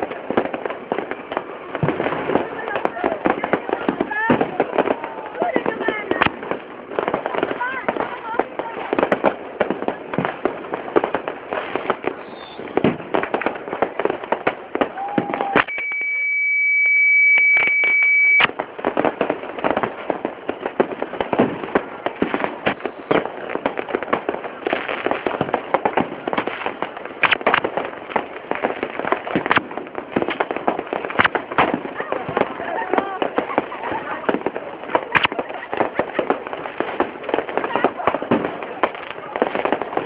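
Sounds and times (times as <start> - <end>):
fireworks bangs and crackles: 0.0 - 40.0
voices: 1.4 - 11.1, 31.6 - 40.0
high-pitched beep: 15.6 - 18.5.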